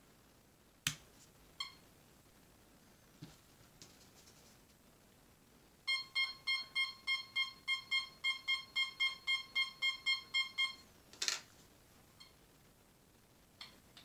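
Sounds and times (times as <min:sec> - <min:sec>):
metal detector beeping: 0:05.9 - 0:10.8.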